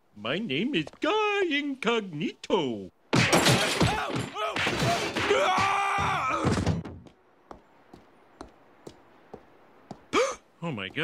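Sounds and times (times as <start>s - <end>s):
cartoon crashes and thumps: 3.1s - 7.0s
pained yells: 3.9s - 6.6s
soft footsteps: 6.8s - 11.0s.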